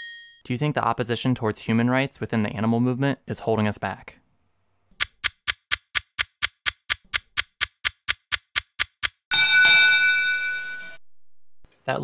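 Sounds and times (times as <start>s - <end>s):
bell ding: 0.0s - 0.4s, 9.3s - 11.0s
clock ticking quickly: 5.0s - 9.3s.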